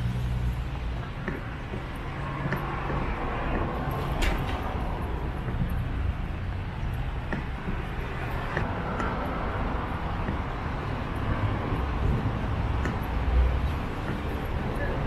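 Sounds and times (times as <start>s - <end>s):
traffic on wet roads: 7.7s - 15.0s.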